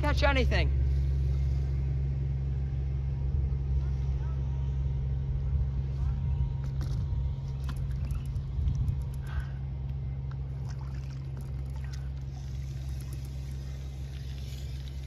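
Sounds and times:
low motor hum: 0.0 - 15.0
light drips and clicks: 7.6 - 15.0.

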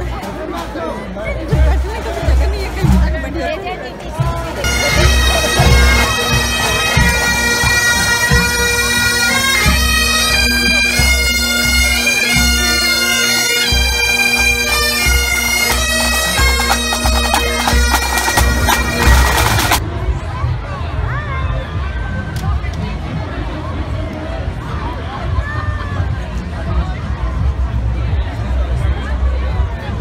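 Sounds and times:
bagpipes playing over drone: 4.6 - 19.8
marching drums beating: 4.6 - 19.8.

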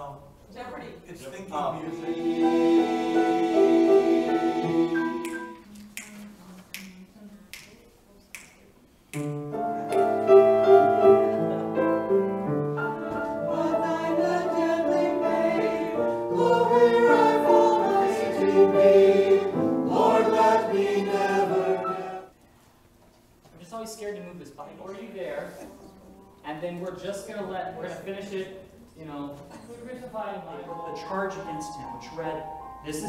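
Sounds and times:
choir singing a hymn: 1.8 - 5.6, 10.3 - 12.1, 12.8 - 22.4
piano accompaniment: 1.8 - 5.8, 9.2 - 22.4, 30.5 - 33.0.

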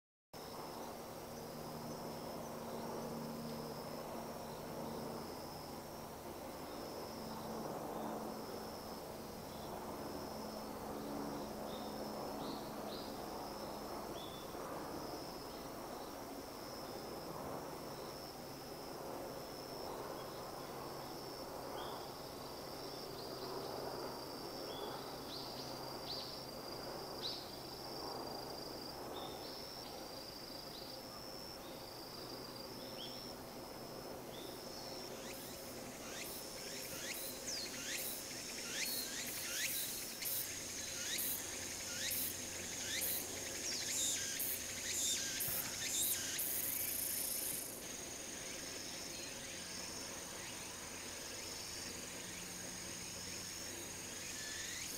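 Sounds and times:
insect buzz: 0.4 - 54.9
falling high insect chirps: 34.3 - 54.9
high cricket-like trill: 34.4 - 54.9.

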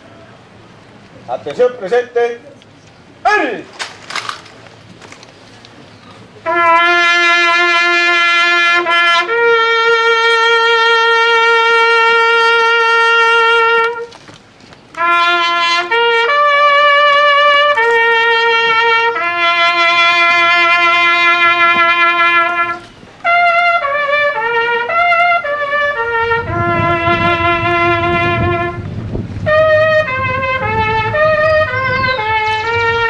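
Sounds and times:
trumpet military call: 6.4 - 14.2, 14.9 - 33.0.

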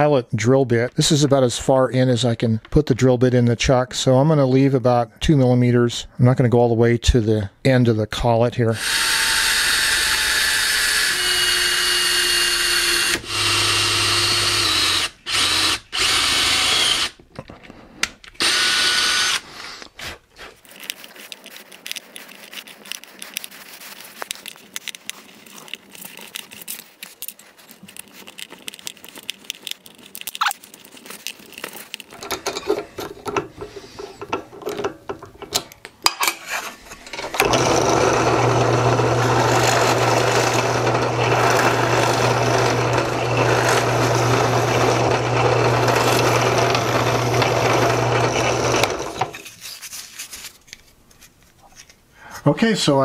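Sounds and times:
electric drill drilling into wood: 8.8 - 17.2, 18.4 - 19.5, 37.3 - 49.4
clicks and rubbing: 19.2 - 37.7, 39.6 - 52.1.

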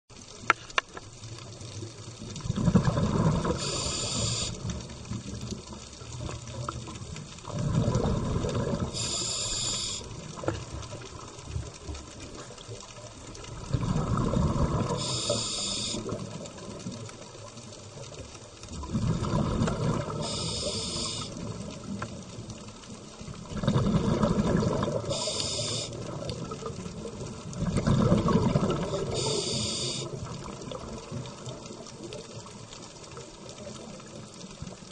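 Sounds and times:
rush of bubbles: 1.5 - 34.9
scuba diver breathing underwater: 2.8 - 4.7, 7.9 - 10.1, 13.9 - 16.2, 19.8 - 21.4, 23.8 - 26.0, 28.2 - 30.2.

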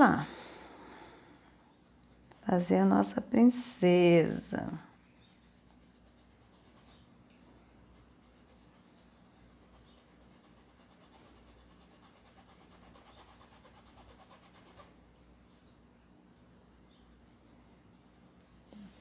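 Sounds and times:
paintbrush scrubbing cloth: 4.7 - 7.0, 7.9 - 14.9.

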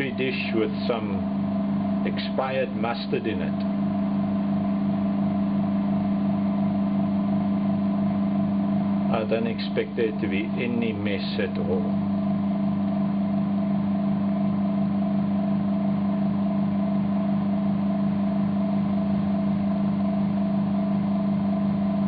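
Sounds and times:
vacuum pump humming: 0.0 - 22.0.

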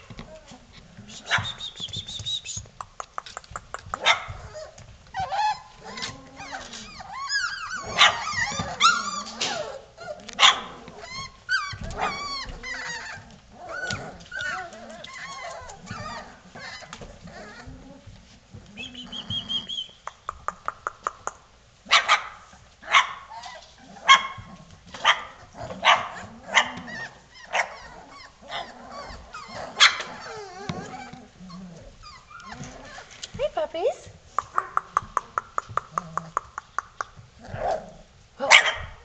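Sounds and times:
puppies yipping and whining: 0.0 - 2.7, 4.0 - 20.0, 23.2 - 33.3.

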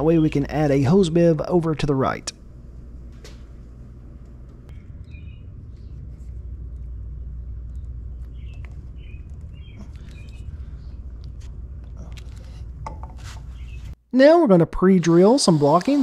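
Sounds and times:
steady low rumble: 0.0 - 14.0
high bird chirps: 4.7 - 5.5, 8.2 - 11.0.

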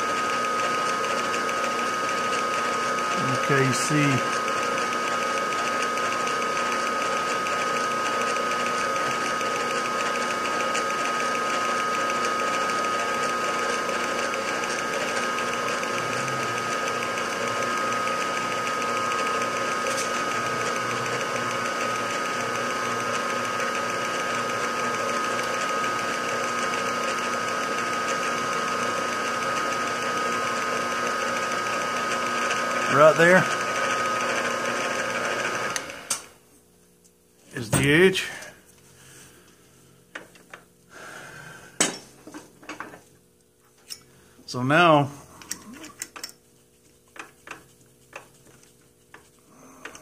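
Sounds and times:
milling machine hum: 0.0 - 36.4, 47.1 - 50.0.

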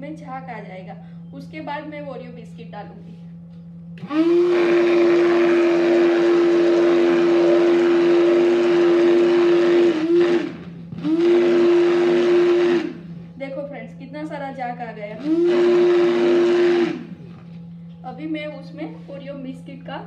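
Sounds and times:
electric hand blender running: 4.0 - 13.1, 15.2 - 17.5.

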